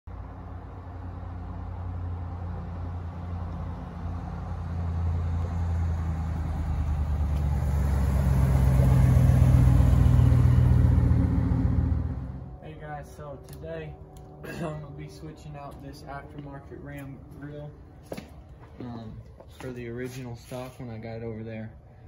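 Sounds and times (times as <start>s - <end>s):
pickup truck engine rumble: 0.1s - 12.9s.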